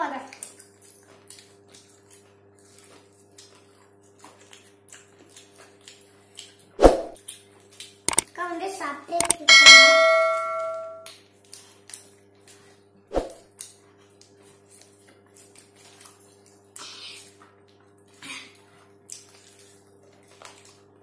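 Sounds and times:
bell-like ding: 9.2 - 11.1.

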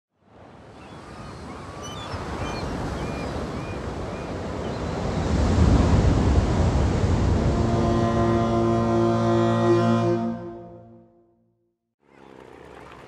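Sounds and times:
sea surf: 0.2 - 9.5
wind noise: 2.4 - 8.4.

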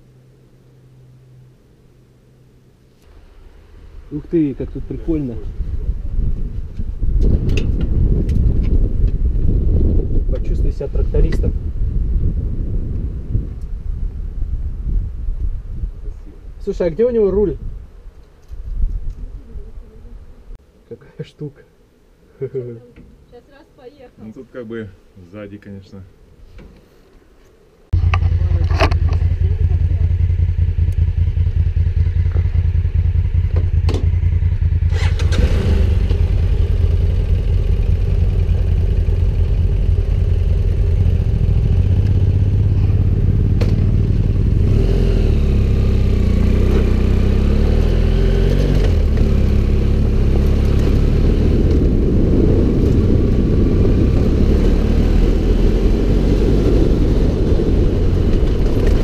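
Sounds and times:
motorcycle engine drone: 0.0 - 15.9, 27.9 - 59.0.

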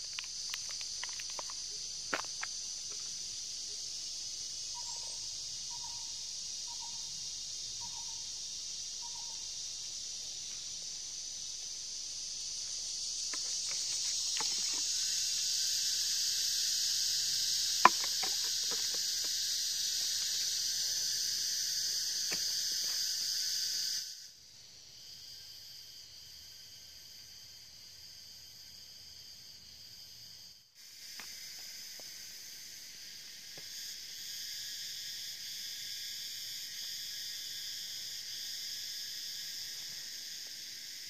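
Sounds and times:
insect chorus droning: 0.0 - 41.0
lower insect drone: 0.0 - 41.0
knocks of hand work in soil: 13.3 - 14.9, 17.8 - 19.4, 22.2 - 23.0.

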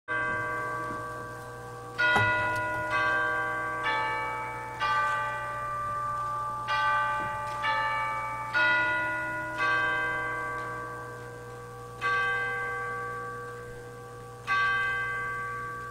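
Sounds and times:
church bells chiming: 0.1 - 15.9.

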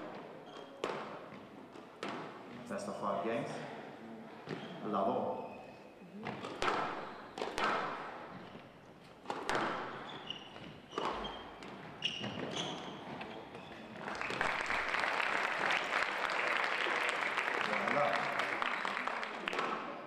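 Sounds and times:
shoes squeaking on court floor: 0.0 - 3.1, 4.3 - 14.0
squash ball cracking off walls: 6.3 - 8.3, 9.2 - 10.1
spectators applauding: 14.0 - 20.0.

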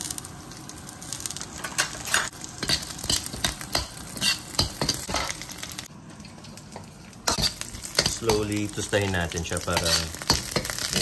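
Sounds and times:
meat sizzling in oil: 0.0 - 11.0
spatula scraping a wok: 2.1 - 5.4, 7.3 - 8.2, 9.7 - 11.0.

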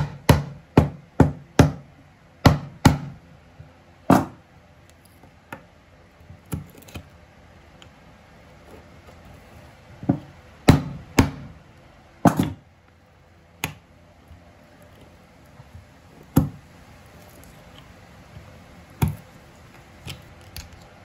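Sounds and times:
chisel knocking into wood: 16.3 - 16.6.

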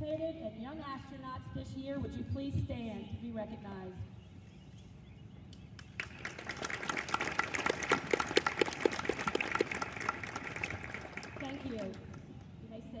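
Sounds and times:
crowd clapping: 5.8 - 12.3.

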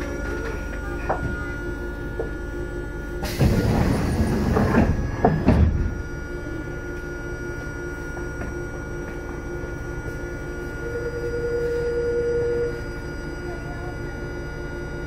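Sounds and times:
railcar equipment hum: 0.0 - 15.0
air hiss of train doors: 3.2 - 5.4.

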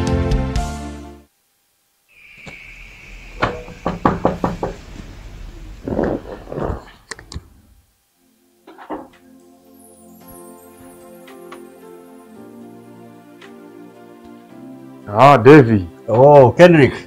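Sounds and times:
knocking on a wooden door: 3.4 - 4.8.

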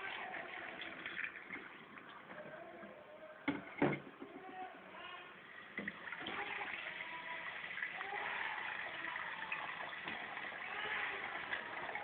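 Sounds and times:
tap water pouring into bowl: 0.0 - 2.4, 5.7 - 12.0.

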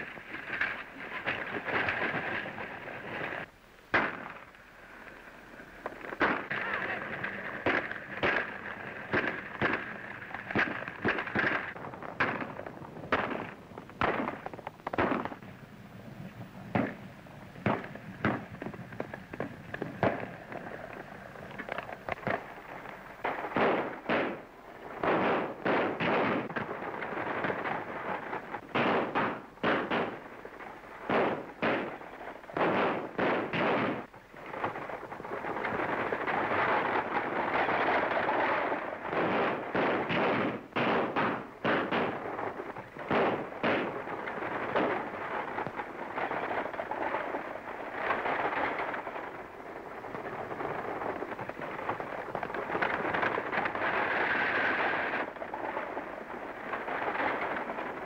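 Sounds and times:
gunshot volleys: 3.9 - 4.4.

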